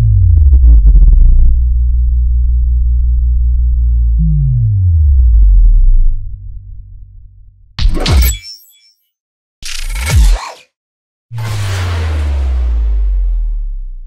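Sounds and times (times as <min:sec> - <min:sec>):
deep synthesizer bass drone: 0:00.0 - 0:07.7, 0:11.3 - 0:14.0.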